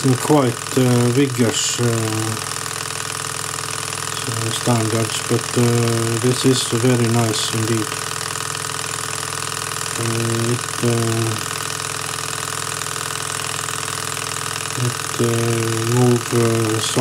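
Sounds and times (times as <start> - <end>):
stirling engine running: 0.0 - 17.0.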